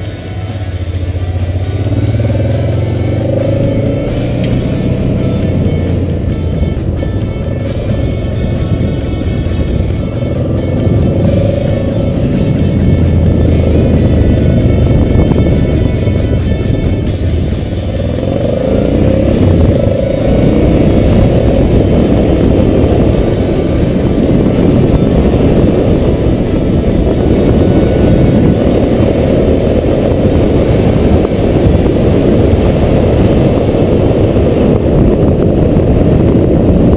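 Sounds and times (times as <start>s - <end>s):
vehicle engine noise: 0.0s - 36.9s
wind rushing on microphone: 0.0s - 36.9s.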